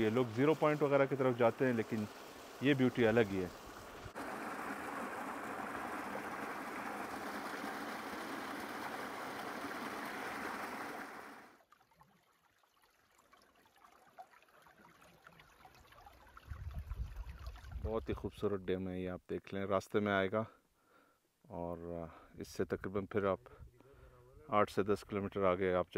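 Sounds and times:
stream splashing over rocks: 0:00.0 - 0:17.8.

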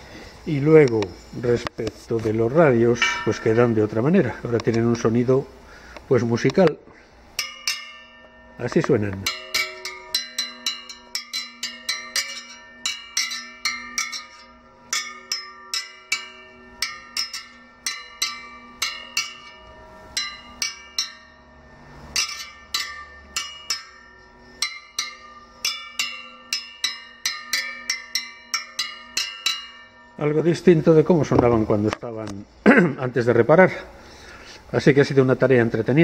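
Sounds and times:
metal spokes tapped ringing: 0:02.6 - 0:05.4, 0:06.0 - 0:32.4.

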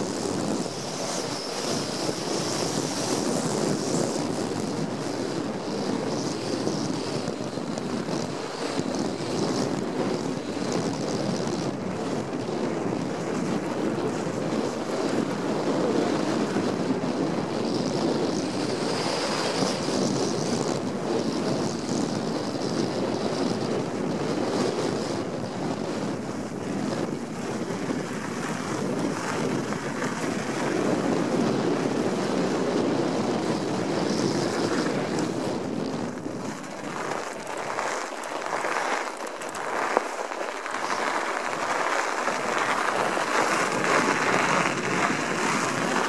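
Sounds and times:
bike tyres rolling on snow: 0:00.0 - 0:46.0
wind rushing over microphone: 0:00.0 - 0:46.0.

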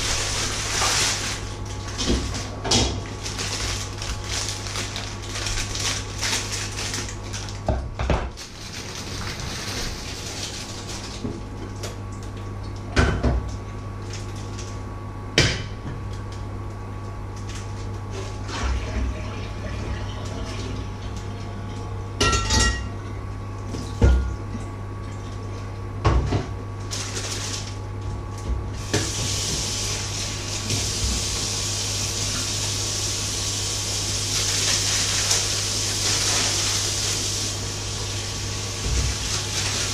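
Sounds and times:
steady low hum: 0:00.0 - 0:39.9
clatter of pots and dishes: 0:22.2 - 0:22.9
water running from a tap: 0:28.8 - 0:39.9.

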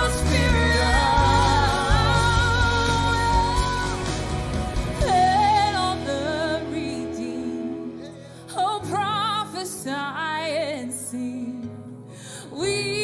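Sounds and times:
worship band playing: 0:00.0 - 0:09.0.

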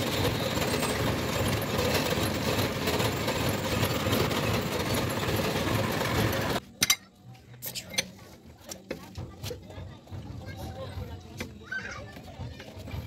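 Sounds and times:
vehicle engine idling: 0:00.0 - 0:06.6.

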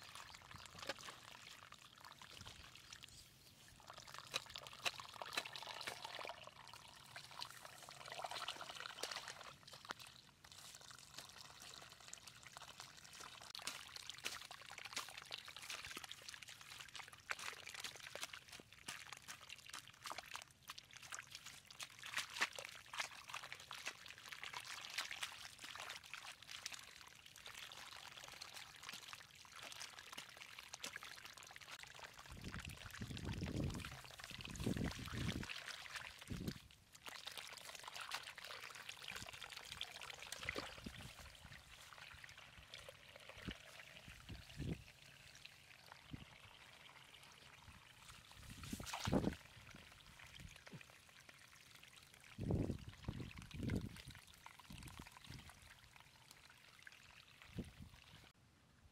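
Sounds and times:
muddy water trickling: 0:00.0 - 0:58.4
hoe scraping and chopping mud: 0:04.2 - 0:06.2, 0:48.4 - 0:49.3.

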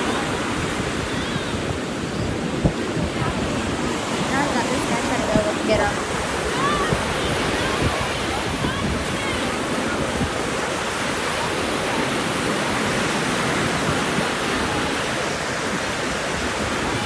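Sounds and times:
ocean surf breaking on beach: 0:00.0 - 0:17.0.

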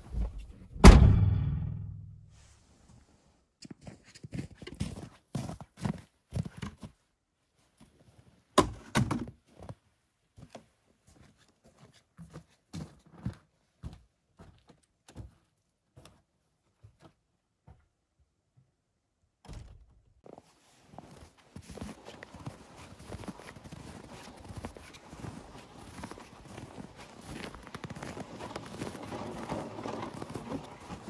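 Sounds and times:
loud thunk: 0:00.8 - 0:02.3
booted footsteps: 0:20.2 - 0:31.0.

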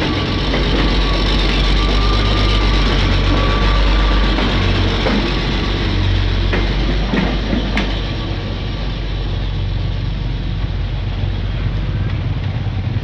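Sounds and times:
train wheels clacking over rail joints: 0:00.0 - 0:08.7
diesel train engine drone: 0:00.0 - 0:13.0.

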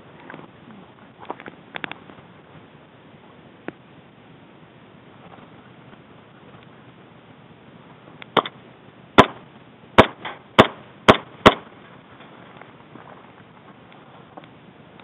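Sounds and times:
airsoft gun shots: 0:09.2 - 0:09.4, 0:10.0 - 0:11.7.

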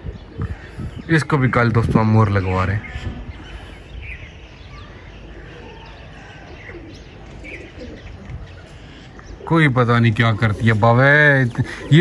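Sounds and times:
pigeons cooing: 0:00.0 - 0:01.3, 0:04.8 - 0:12.0.

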